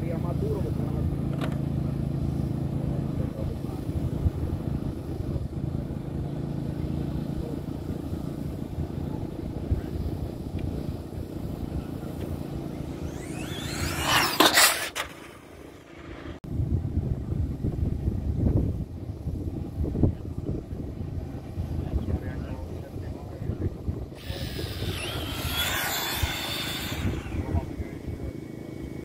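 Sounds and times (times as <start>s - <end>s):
rc car motor whine: 12.7s - 16.4s, 24.2s - 29.0s.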